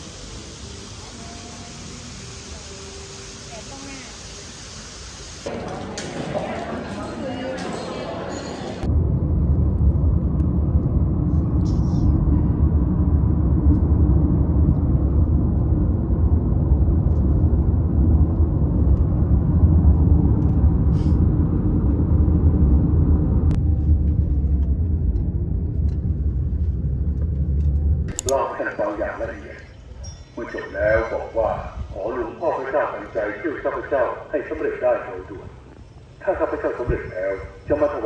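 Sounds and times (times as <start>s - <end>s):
car engine and tyre noise: 8.8s - 28.3s.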